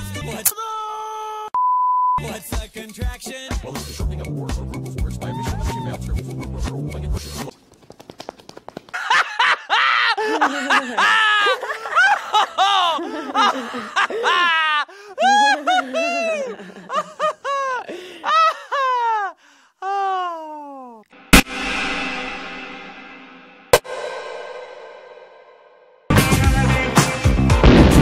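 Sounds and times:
person laughing high-pitched: 9.0 - 21.0.

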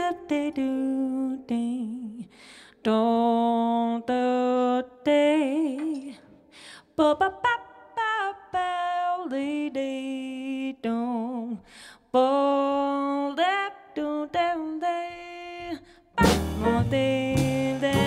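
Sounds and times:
woman singing jazz: 0.0 - 6.3, 7.0 - 18.0
double bass: 16.2 - 18.0
drum kit: 16.2 - 18.0.

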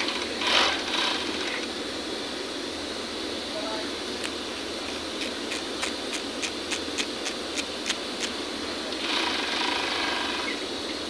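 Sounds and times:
overlock machine stitching: 0.0 - 1.6, 9.0 - 10.6.

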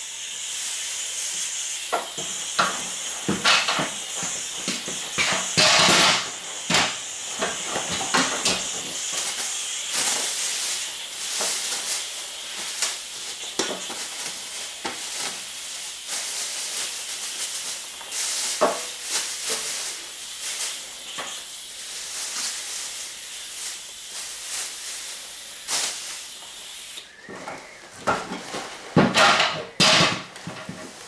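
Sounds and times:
aerosol spray can hissing: 0.0 - 27.2
crackles and knocks: 1.9 - 10.4, 27.3 - 31.0.

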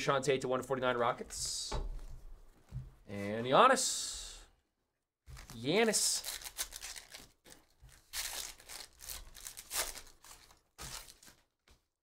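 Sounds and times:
foil wrapper tearing and crinkling: 5.3 - 11.6.

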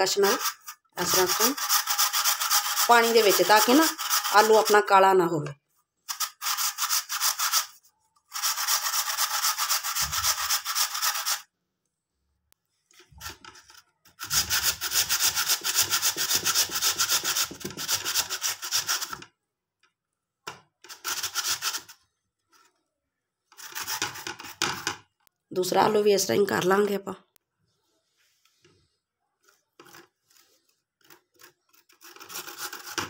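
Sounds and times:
potato scraped on metal grater: 0.0 - 4.9, 6.1 - 11.5, 13.2 - 19.2, 20.8 - 22.8, 23.5 - 24.9, 29.4 - 33.0.

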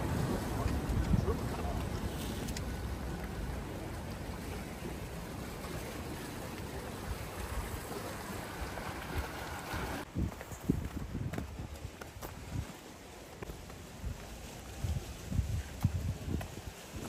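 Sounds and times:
wind on the microphone: 0.0 - 8.0, 8.6 - 17.0
sea water washing on shore: 0.0 - 10.1, 10.9 - 17.0.

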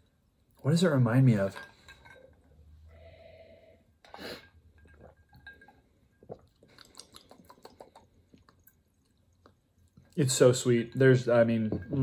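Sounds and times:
person sipping and swallowing: 4.0 - 10.2
mouth clicks and lip smacks: 6.3 - 8.7.

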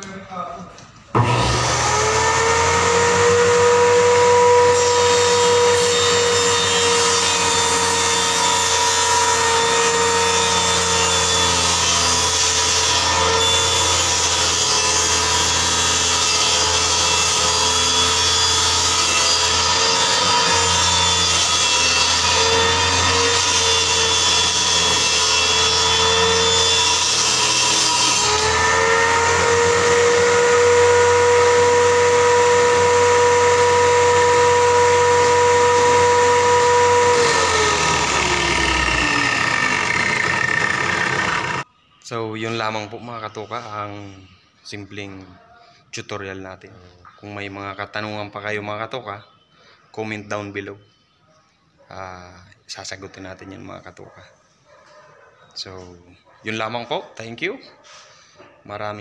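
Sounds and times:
table saw whining: 1.1 - 41.7
saw ripping a board: 1.2 - 41.7.

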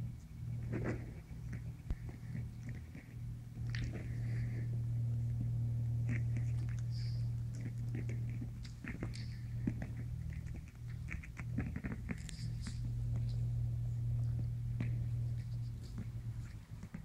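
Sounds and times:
puppies scuffling and mouthing: 0.0 - 17.0
steady low hum: 0.0 - 17.0.

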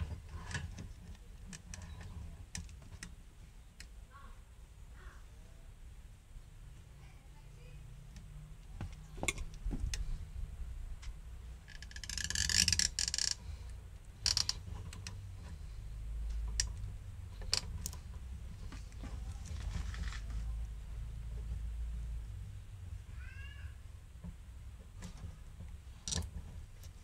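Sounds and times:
scraping rustle: 17.4 - 20.6.

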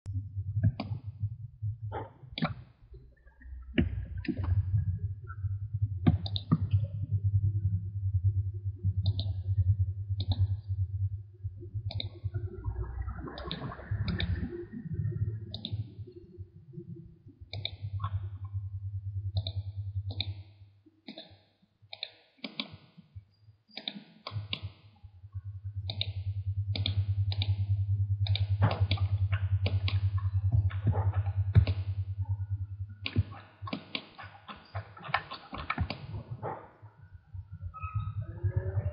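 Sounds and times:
steady low hum: 0.0 - 20.8, 25.0 - 38.9
computer mouse clicking: 19.4 - 20.4, 21.1 - 22.9, 23.8 - 24.8, 26.8 - 27.5.

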